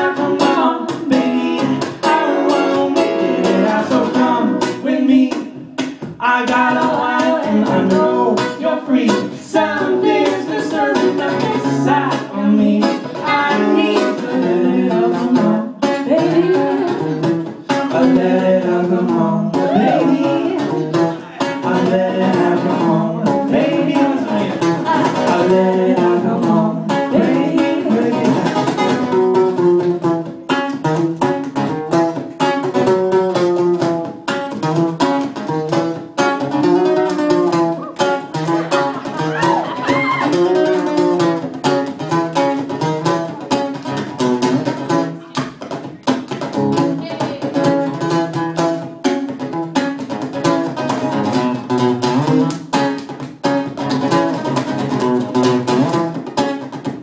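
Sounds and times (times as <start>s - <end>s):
person singing: 0.0s - 29.6s, 36.5s - 41.4s, 46.8s - 48.4s
strummed acoustic guitar: 0.0s - 57.0s.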